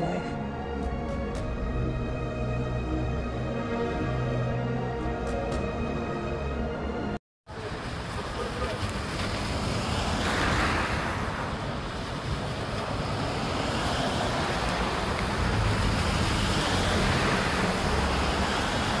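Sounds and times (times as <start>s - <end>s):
tyres hissing on wet road: 7.5s - 19.0s.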